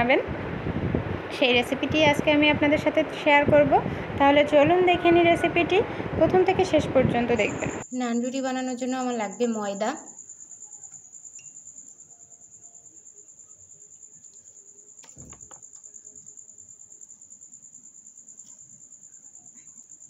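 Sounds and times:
cricket chirping: 0:06.7 - 0:20.0.

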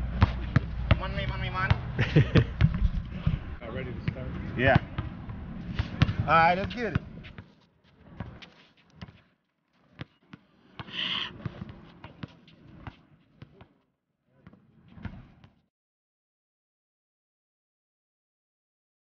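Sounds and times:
basketball bouncing on court: 0:00.0 - 0:03.6, 0:04.7 - 0:09.2, 0:09.9 - 0:13.8, 0:14.4 - 0:15.6.

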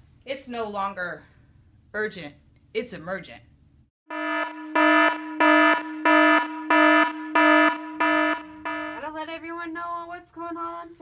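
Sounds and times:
buzzy electronic alarm beeps: 0:04.1 - 0:09.0
woman's voice: 0:09.0 - 0:11.0.

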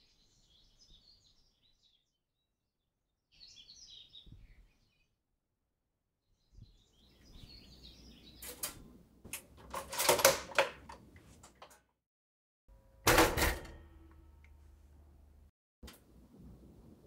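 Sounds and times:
faint bird chirps: 0:03.3 - 0:05.2
toaster clicks and rattles: 0:08.4 - 0:11.8, 0:13.0 - 0:14.2.

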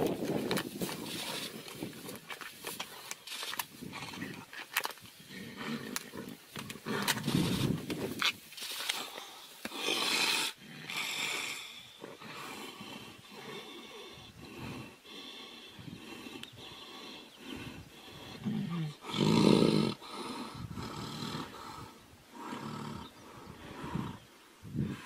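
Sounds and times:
tigers growling and snarling: 0:03.8 - 0:04.6, 0:05.2 - 0:07.9, 0:09.0 - 0:25.0.

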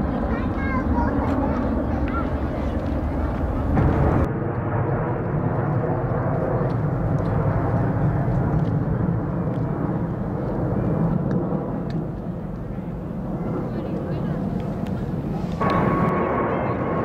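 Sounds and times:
jet airliner roar: 0:00.0 - 0:17.0.

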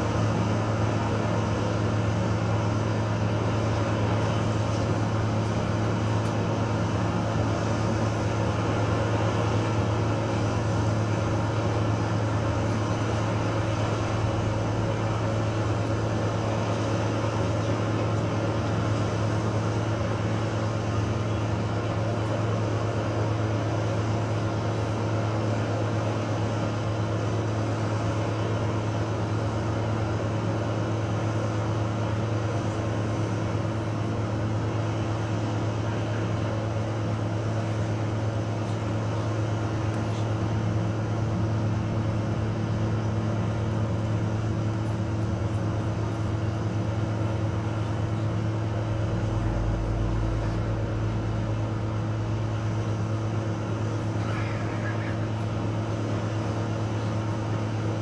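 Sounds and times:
electronic drone music: 0:49.0 - 0:52.6.

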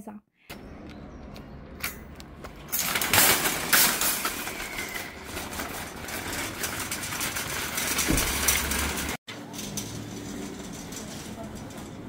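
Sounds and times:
shopping trolley rattling on paving: 0:02.6 - 0:12.0.

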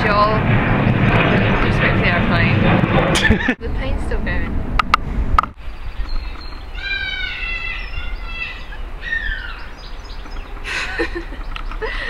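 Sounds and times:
aeroplane rumbling overhead: 0:00.0 - 0:12.0
falling animal call: 0:06.8 - 0:09.6.

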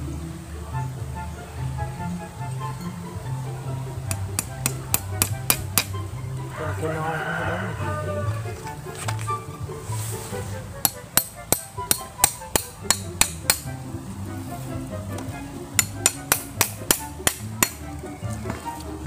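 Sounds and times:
machete tapping bamboo: 0:04.0 - 0:06.0, 0:10.8 - 0:13.8, 0:15.2 - 0:17.9.

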